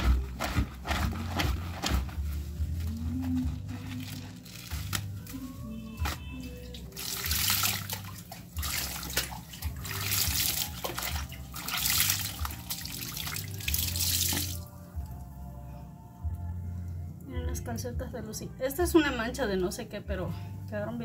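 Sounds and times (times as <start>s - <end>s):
soft background music: 0.0s - 21.0s
water splashing into sink: 6.9s - 14.6s.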